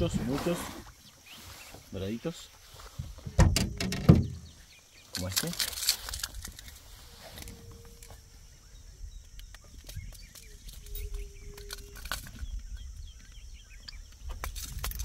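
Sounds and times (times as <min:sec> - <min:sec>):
low animal calls: 0:06.9 - 0:09.0, 0:09.6 - 0:13.7.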